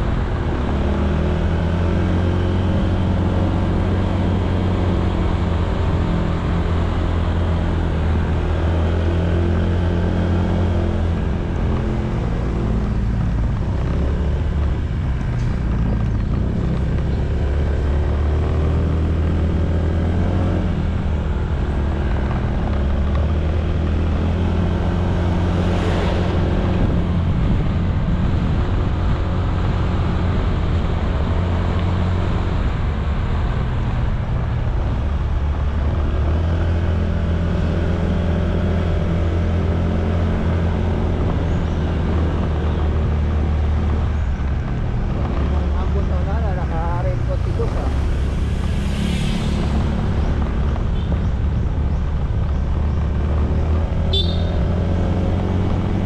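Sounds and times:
brief whoosh: 48.0s - 50.2s
scooter engine running: 54.1s - 54.6s.

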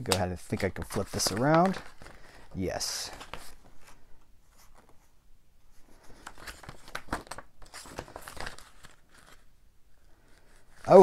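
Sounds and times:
plastic crinkling: 0.0s - 4.0s
cardboard rustling: 0.1s - 5.2s.

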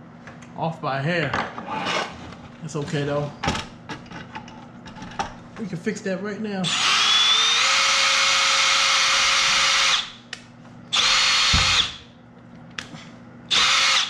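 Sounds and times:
cordless drill motor whine: 6.6s - 10.2s, 10.9s - 12.0s, 13.5s - 14.0s.

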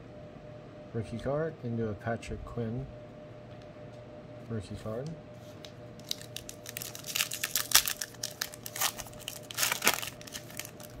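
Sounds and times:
foil wrapper tearing and crinkling: 6.0s - 11.0s.

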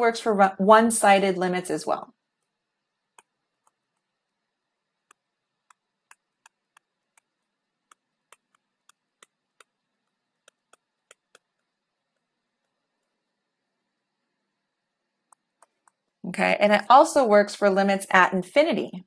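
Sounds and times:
stylus tapping on tablet screen: 2.3s - 4.3s, 4.9s - 13.3s, 15.2s - 16.2s.

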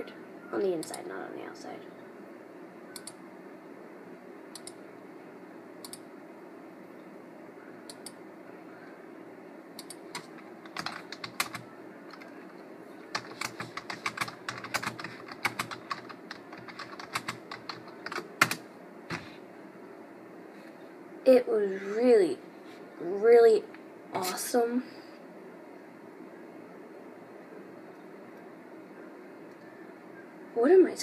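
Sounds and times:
typing on computer keyboard: 9.8s - 12.3s, 13.1s - 19.3s.

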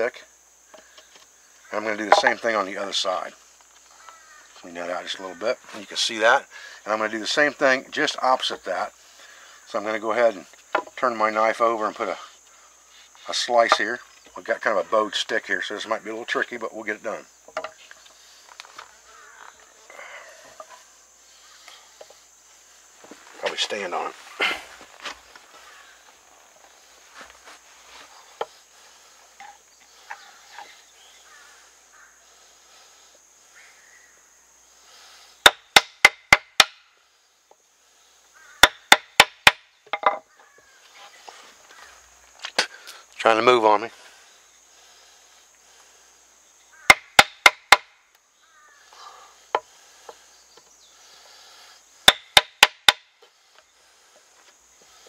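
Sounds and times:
faint bird chirps: 3.8s - 5.5s, 28.1s - 35.2s, 48.2s - 51.8s.

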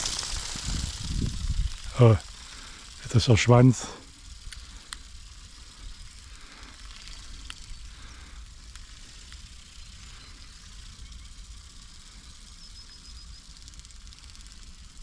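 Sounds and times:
wind buffeting microphone: 0.0s - 2.1s
faint clicks: 4.4s - 5.1s, 6.6s - 7.7s.

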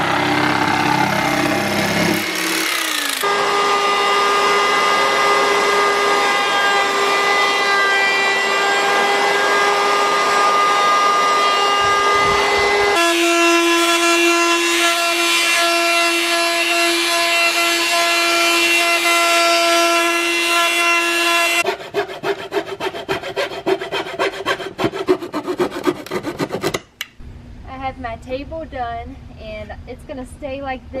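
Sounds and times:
oscillating multi-tool sanding hum: 0.0s - 26.8s
hand saw cutting wood: 0.1s - 13.5s, 21.2s - 27.0s.

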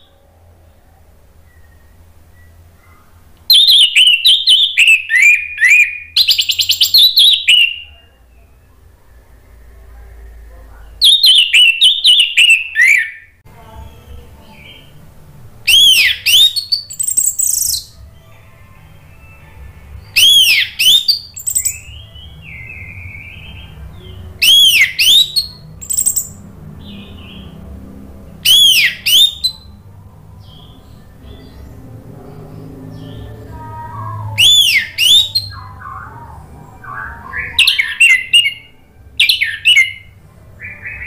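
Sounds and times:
thrush singing whistled phrases: 3.5s - 8.6s, 11.0s - 13.4s, 15.7s - 18.0s, 18.9s - 26.4s, 28.4s - 29.8s, 32.9s - 41.0s.

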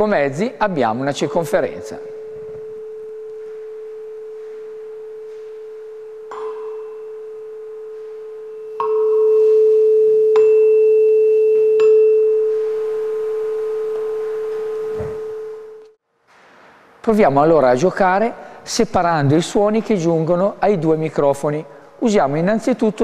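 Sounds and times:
tuning fork ringing: 1.8s - 16.0s
mallet striking tuning fork: 6.2s - 12.7s.

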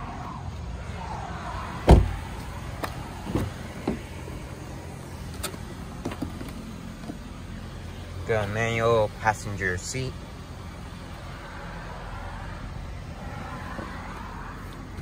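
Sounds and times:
car door shutting: 1.8s - 4.1s
car door clicks and knocks: 1.9s - 2.2s, 3.2s - 4.1s.

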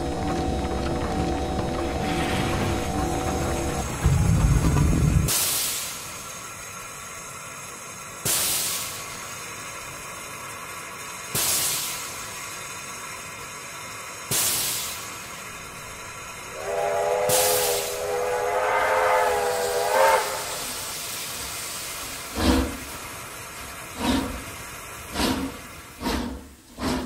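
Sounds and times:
steam whistle: 0.0s - 4.2s, 16.4s - 21.2s
deep low rumble: 0.0s - 5.3s
steam hissing in bursts: 2.0s - 27.0s.

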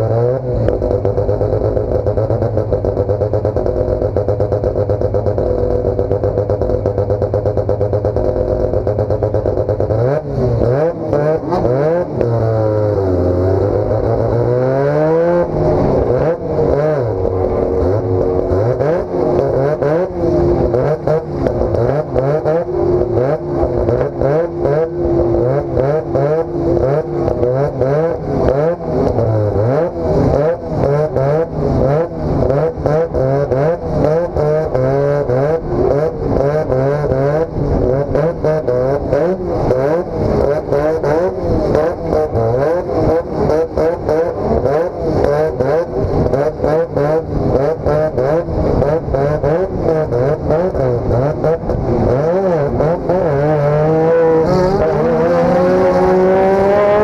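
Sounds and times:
race car engine revving: 0.0s - 57.0s.

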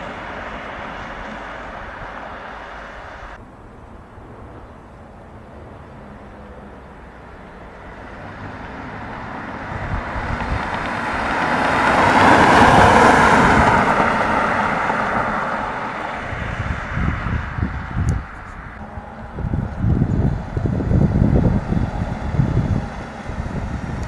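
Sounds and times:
wind buffeting microphone: 0.0s - 24.0s
car driving past: 5.6s - 24.0s.

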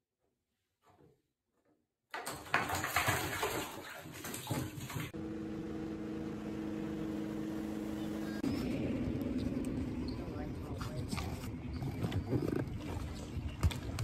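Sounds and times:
cat splashing in water: 2.1s - 5.2s
steady drone: 5.2s - 10.8s.

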